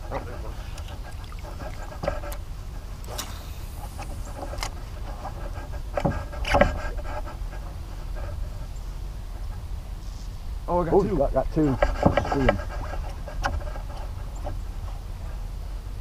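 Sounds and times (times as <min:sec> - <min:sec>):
fishing reels cranking: 0:03.0 - 0:05.7
rods knocking against boat: 0:11.6 - 0:14.0.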